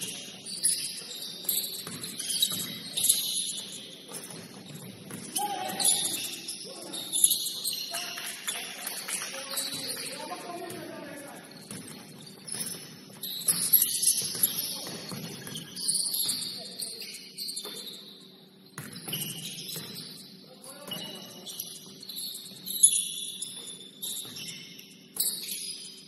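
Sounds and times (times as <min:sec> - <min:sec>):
shoes squeaking on hardwood floor: 0:00.0 - 0:08.8, 0:09.4 - 0:18.1.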